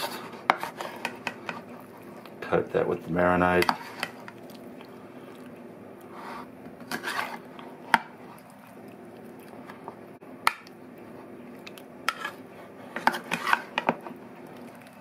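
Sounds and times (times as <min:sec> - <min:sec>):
steady low hum: 0:00.0 - 0:15.0
soft wet squishing: 0:03.8 - 0:06.5, 0:07.1 - 0:10.0, 0:10.6 - 0:12.8, 0:14.3 - 0:15.0.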